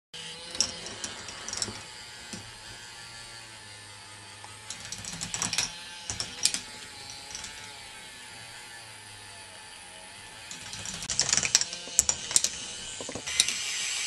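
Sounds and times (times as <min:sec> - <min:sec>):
plastic parts and balls clattering: 0:00.2 - 0:03.0, 0:04.5 - 0:08.1, 0:10.4 - 0:14.0
steady low hum: 0:00.2 - 0:14.0.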